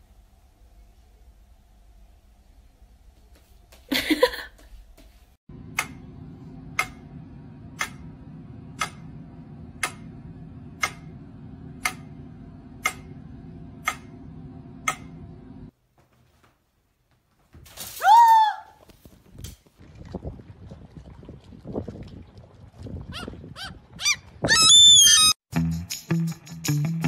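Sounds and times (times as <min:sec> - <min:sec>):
low steady hum: 0:00.0 - 0:17.2
steady ticking: 0:05.7 - 0:15.4.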